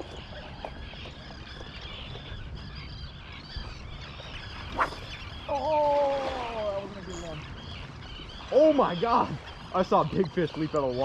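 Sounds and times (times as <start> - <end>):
birds chattering: 0.0 - 11.0
water: 0.0 - 11.0
wind: 0.0 - 11.0.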